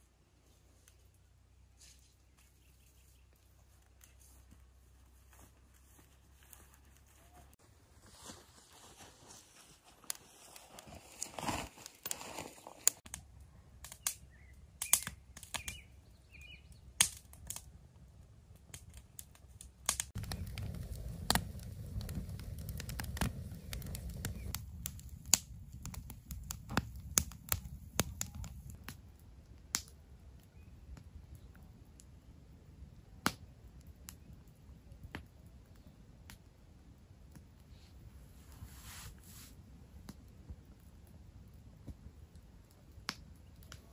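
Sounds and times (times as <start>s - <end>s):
campfire crackling and popping: 9.8s - 43.9s.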